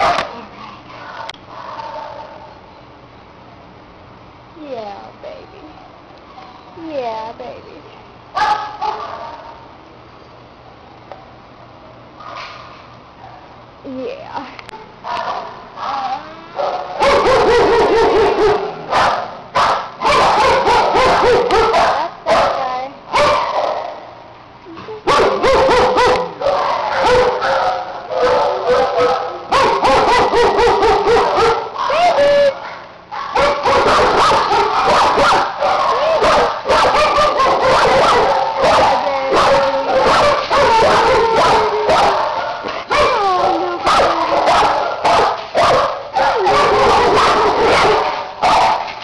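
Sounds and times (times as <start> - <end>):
dogs barking and yipping: 0.0 - 2.5, 8.4 - 9.6, 16.6 - 24.1, 25.1 - 49.0.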